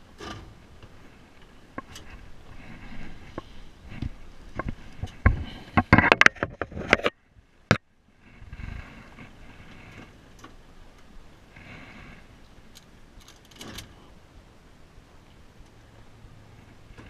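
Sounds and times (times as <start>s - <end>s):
camera handling clicks and bumps: 4.0s - 7.8s.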